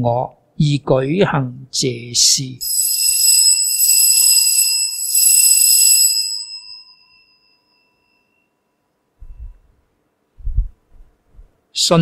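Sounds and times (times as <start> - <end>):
small bells ringing: 2.6 - 8.6.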